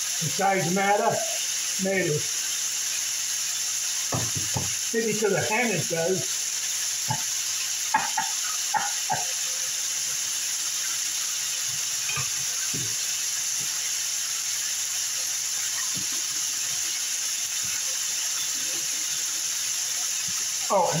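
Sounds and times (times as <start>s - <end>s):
chicken sizzling in oil: 0.0s - 21.0s.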